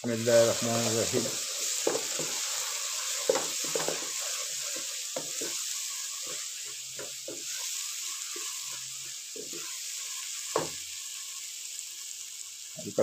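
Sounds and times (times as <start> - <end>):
spices sizzling in oil: 0.0 - 13.0
wooden spatula scraping pan: 0.3 - 7.6.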